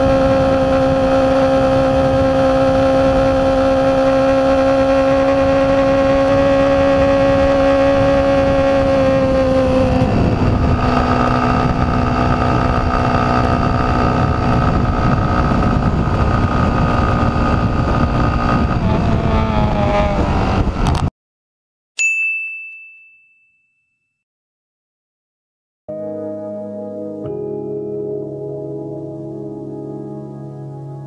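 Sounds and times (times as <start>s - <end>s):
motorcycle engine at high revs: 0.0s - 21.1s
wind and road noise: 0.0s - 21.1s.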